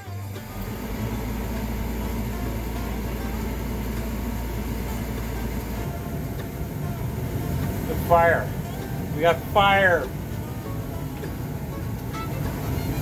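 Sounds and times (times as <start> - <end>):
furnace motor hum: 0.0 - 13.0.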